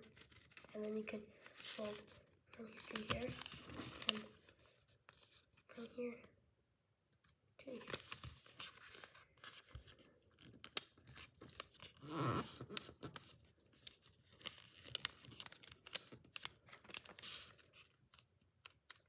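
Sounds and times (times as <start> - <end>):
paper rustling and crinkling: 0.0 - 5.8, 7.7 - 18.3.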